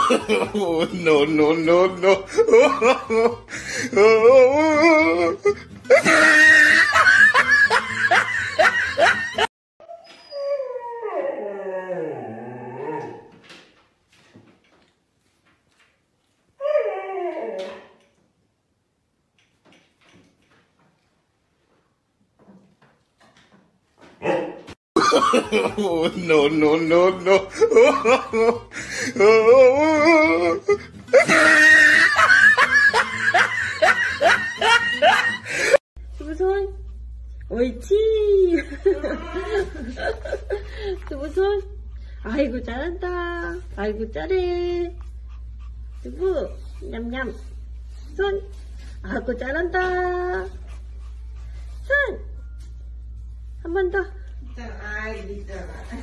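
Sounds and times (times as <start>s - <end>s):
person laughing hard: 0.0s - 9.5s, 25.0s - 35.8s, 38.6s - 41.0s
dog howling: 10.3s - 13.3s, 16.6s - 18.0s.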